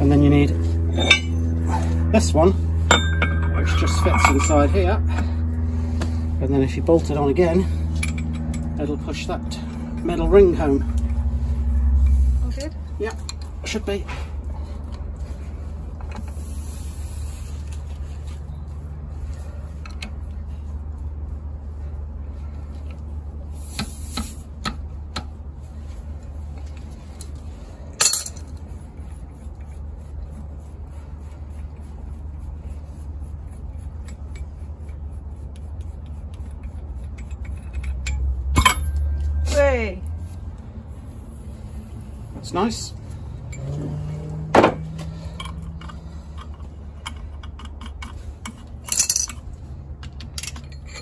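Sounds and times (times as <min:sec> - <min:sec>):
steady low hum: 0:00.0 - 0:51.0
metal tools clinking: 0:00.8 - 0:01.8, 0:02.8 - 0:05.2, 0:26.7 - 0:28.6, 0:37.1 - 0:39.9, 0:43.4 - 0:44.0, 0:45.0 - 0:49.6, 0:50.2 - 0:51.0.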